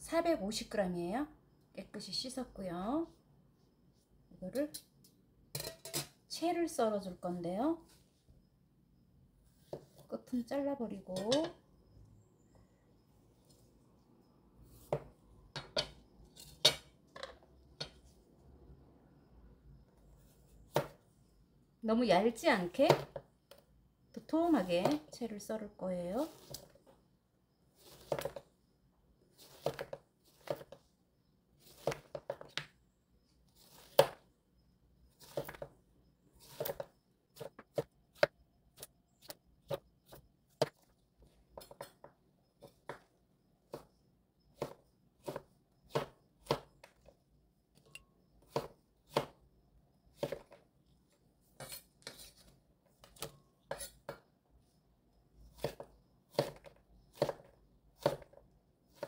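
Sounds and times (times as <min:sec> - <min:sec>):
knife slicing on wooden board: 0:51.6 - 0:52.5, 0:53.2 - 0:54.2.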